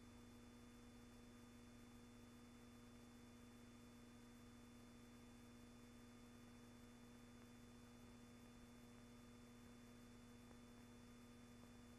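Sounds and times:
faint steady hum and hiss: 0.0s - 11.9s.

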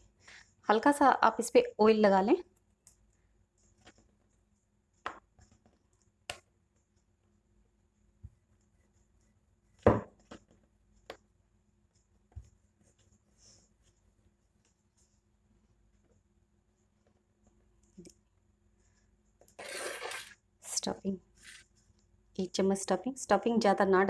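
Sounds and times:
rolling pin knocking on countertop: 9.8s - 10.2s.

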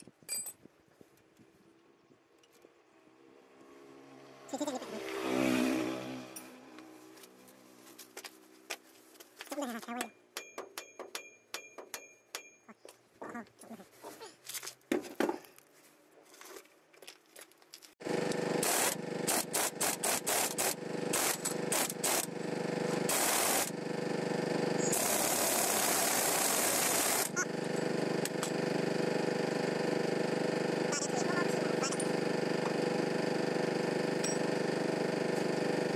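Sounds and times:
impact wrench hammering: 10.3s - 12.6s
steady machine drone: 18.0s - 35.9s.

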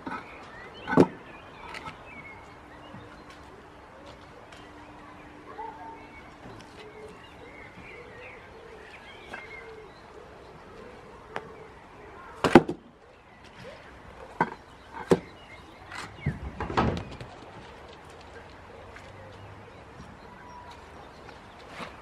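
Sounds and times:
paving slabs knocking together: 12.4s - 12.8s, 14.3s - 18.4s.

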